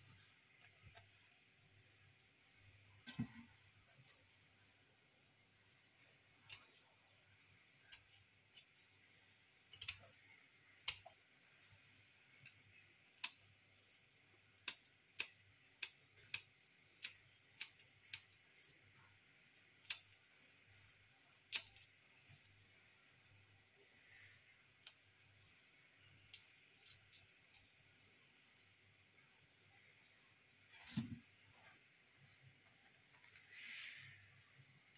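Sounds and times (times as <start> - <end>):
scissors snipping prawn shells: 9.7 - 10.2, 13.1 - 18.8, 19.8 - 20.2, 21.4 - 22.4.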